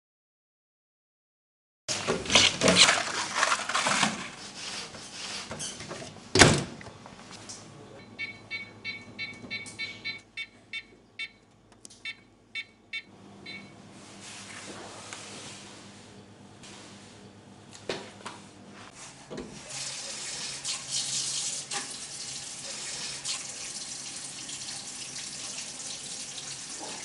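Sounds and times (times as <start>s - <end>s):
clattering and rustling: 1.9s - 6.7s
microwave keypad beeps: 8.0s - 13.8s.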